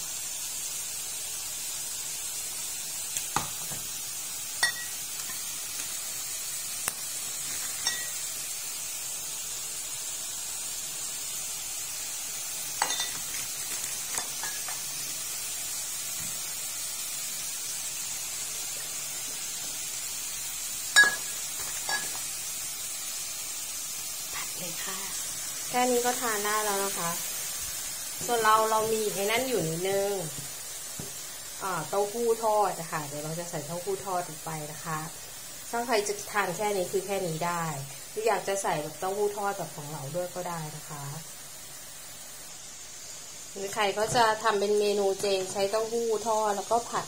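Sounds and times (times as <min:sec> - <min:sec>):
food sizzling in a frying pan: 0:00.0 - 0:47.0
utensils clinking against pan: 0:04.6 - 0:05.4, 0:07.6 - 0:08.2, 0:12.8 - 0:13.5, 0:14.1 - 0:14.8, 0:21.0 - 0:22.2.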